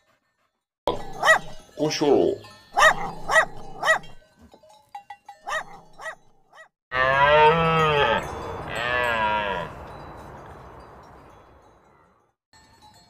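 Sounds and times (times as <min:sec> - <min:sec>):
wavering moo-like animal calls: 0:06.9 - 0:09.8.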